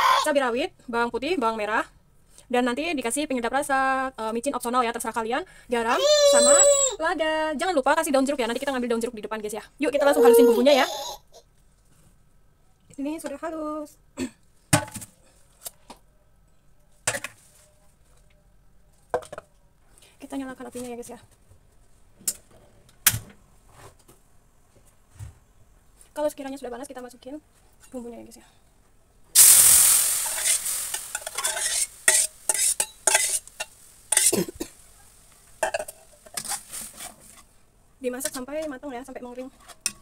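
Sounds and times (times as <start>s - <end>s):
faint oil sizzle: 29.4s - 37.4s
utensil scraping a wok: 29.4s - 37.6s
metal bowl knocking and clattering: 35.6s - 36.5s.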